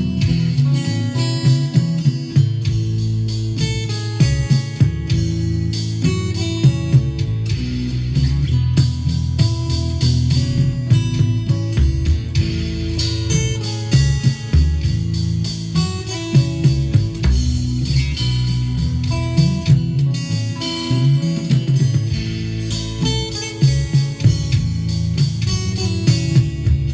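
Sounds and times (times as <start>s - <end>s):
acoustic guitar picking: 0.0s - 26.9s.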